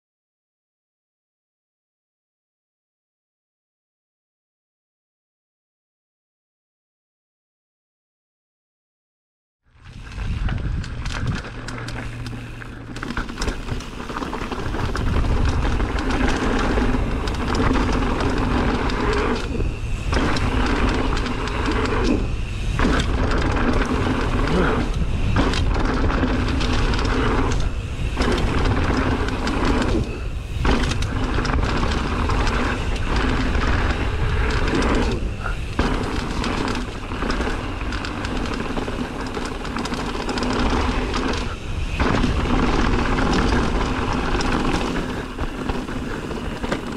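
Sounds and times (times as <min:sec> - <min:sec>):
wind noise: 0:09.7 - 0:46.9
bike tyres clattering over rocks: 0:09.8 - 0:46.9.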